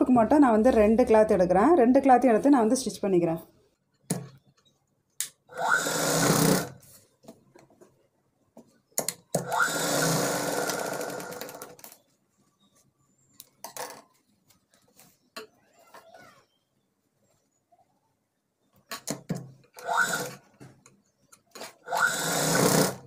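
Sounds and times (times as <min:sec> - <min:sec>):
sewing machine running: 0:05.5 - 0:06.8, 0:09.4 - 0:11.8, 0:19.8 - 0:20.4, 0:21.8 - 0:23.0.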